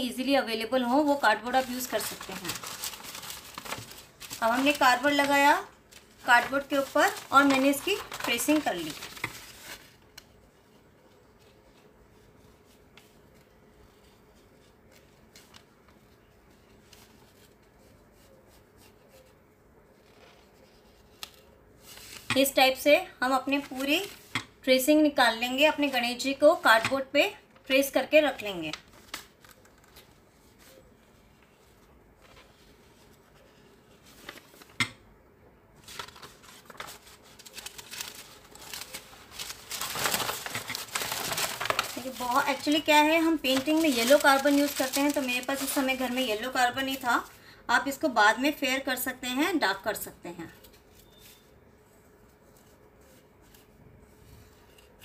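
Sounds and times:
paper rustling and crinkling: 1.0s - 22.6s, 23.4s - 24.4s, 27.6s - 34.8s, 35.8s - 47.4s.

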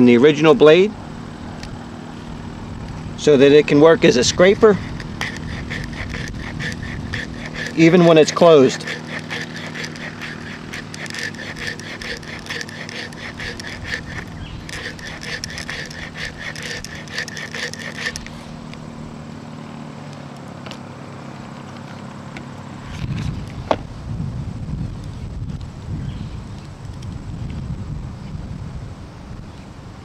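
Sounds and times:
blade spine scraping wooden stick: 4.0s - 18.6s.

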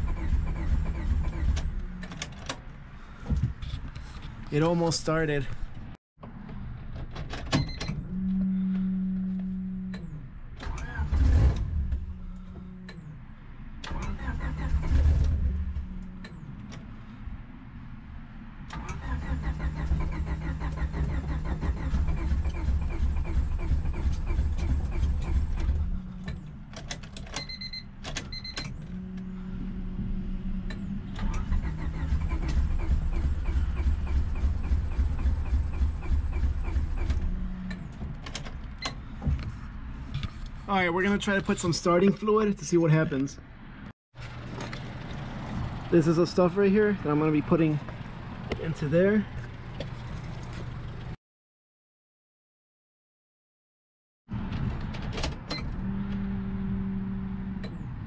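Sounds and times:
starter motor cranking engine: 13.9s - 15.4s, 31.2s - 37.2s.

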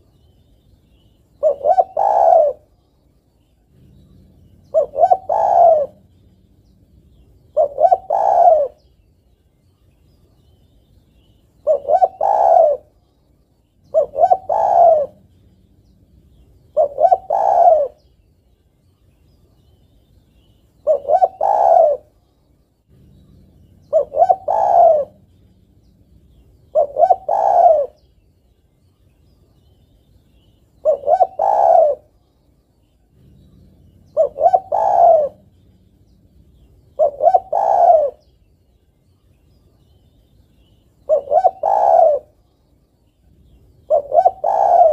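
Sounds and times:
dove cooing: 1.4s - 2.8s, 3.6s - 9.0s, 11.6s - 13.0s, 13.8s - 18.2s, 20.4s - 22.2s, 22.9s - 28.1s, 30.8s - 32.2s, 33.0s - 38.4s, 40.9s - 42.4s, 43.3s - 44.9s.

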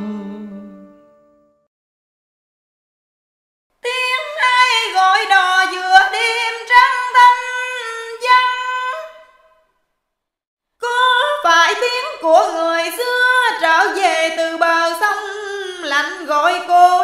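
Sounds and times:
woman singing unaccompanied: 3.8s - 9.3s, 10.8s - 17.0s.

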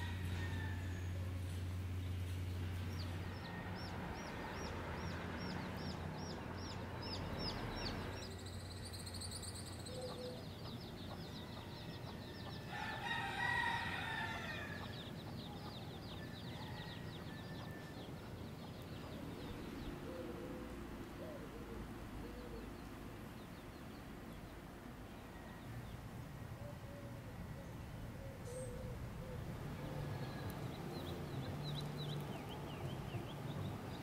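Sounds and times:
rooster crowing: 0.0s - 1.4s, 11.3s - 18.3s, 29.4s - 31.2s
chicks peeping: 10.0s - 20.1s, 30.2s - 34.0s.

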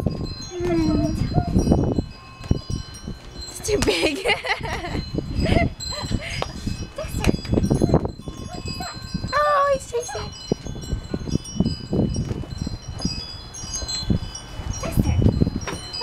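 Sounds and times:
chime-like ringing tones: 0.0s - 16.0s
puppy whimpering: 0.5s - 1.6s, 10.0s - 10.3s.

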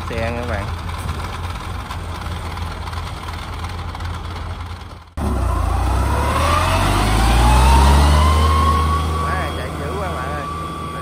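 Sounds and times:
tracked carrier engine running: 0.0s - 11.0s.

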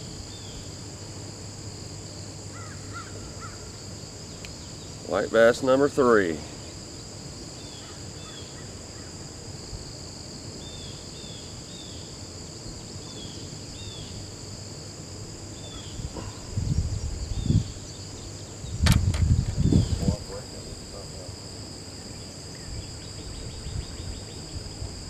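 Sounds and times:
insects droning: 0.0s - 25.0s
sharp click: 18.8s - 19.6s
low bumps and rustles: 18.8s - 20.3s.

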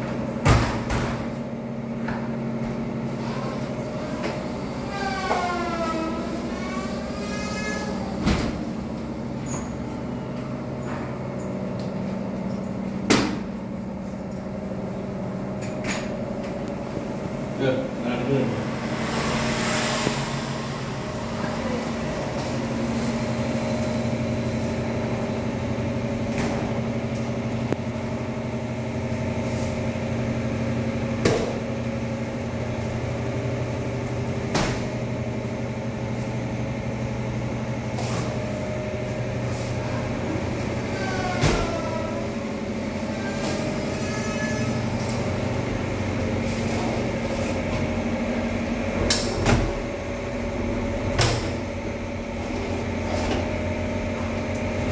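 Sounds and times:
steady mechanical hum: 0.0s - 54.9s
doors and windows opening and shutting: 4.0s - 9.8s.

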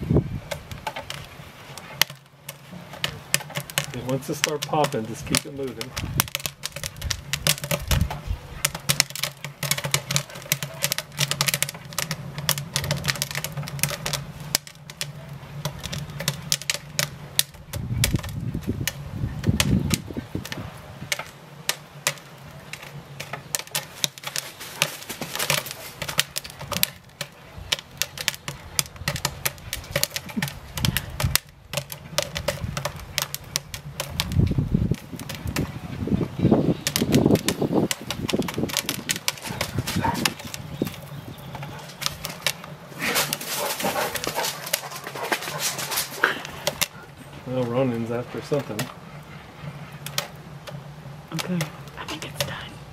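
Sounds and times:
popcorn popping: 0.0s - 52.9s.

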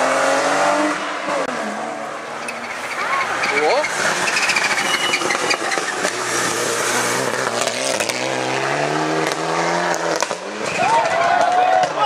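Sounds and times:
rally car engine revving: 0.0s - 11.4s
engine crackles: 2.2s - 11.5s.

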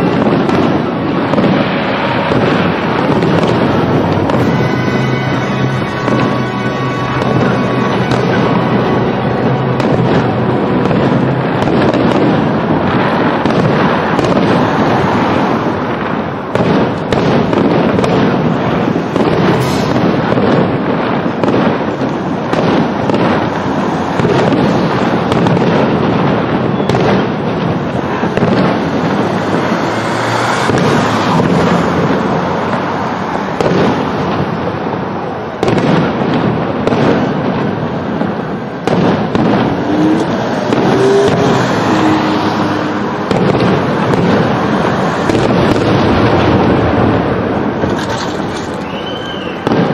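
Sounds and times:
firework shells bursting: 0.0s - 49.9s.

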